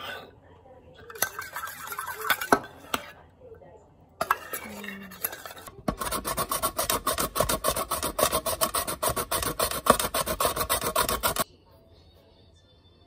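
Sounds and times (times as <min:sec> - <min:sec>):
carrot rasping on grater: 0:04.2 - 0:11.4.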